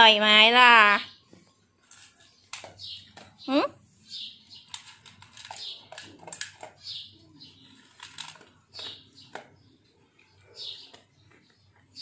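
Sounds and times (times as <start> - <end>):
dog crunching dry kibble: 4.6 - 7.0, 7.7 - 9.6.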